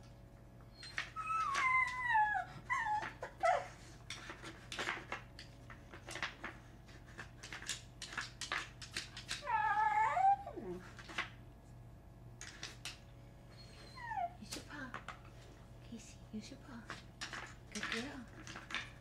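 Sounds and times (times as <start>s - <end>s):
dog whining: 0.7s - 3.8s, 9.3s - 10.9s, 13.5s - 14.5s
wooden puzzle pieces clicking: 7.4s - 9.4s.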